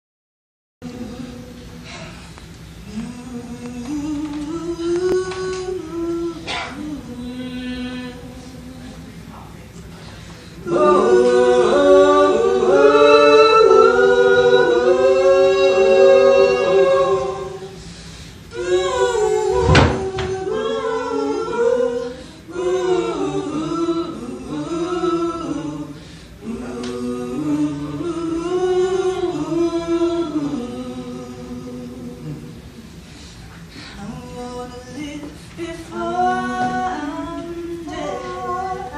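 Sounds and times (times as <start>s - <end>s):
voices singing in harmony: 0.8s - 2.1s, 2.8s - 9.2s, 10.5s - 38.9s
heavy thump: 19.6s - 20.4s.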